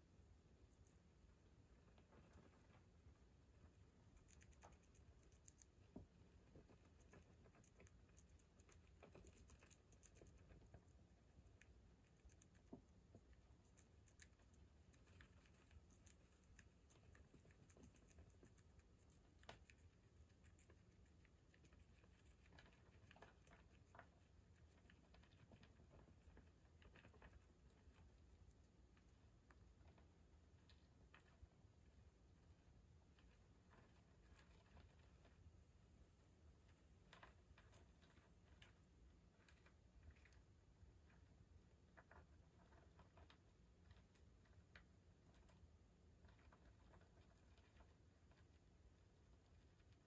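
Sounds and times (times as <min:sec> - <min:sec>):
hamster nibbling clicks: 0:00.5 - 0:35.4.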